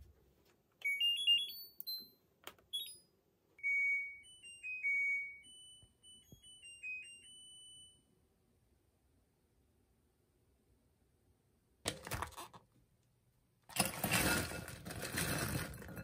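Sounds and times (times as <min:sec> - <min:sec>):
washing machine beeping tune: 0:00.8 - 0:08.1.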